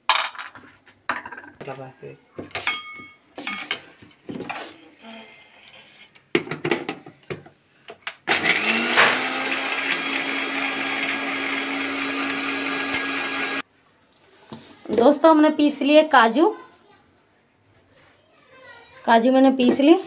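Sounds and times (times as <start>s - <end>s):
mixer grinder motor whining: 8.3s - 13.6s.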